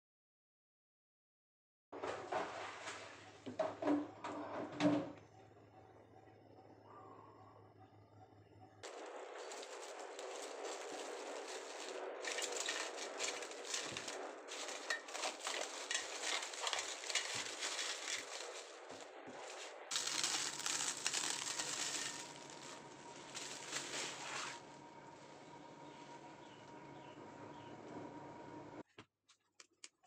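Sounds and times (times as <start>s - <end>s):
cling film crinkling: 8.8s - 24.7s.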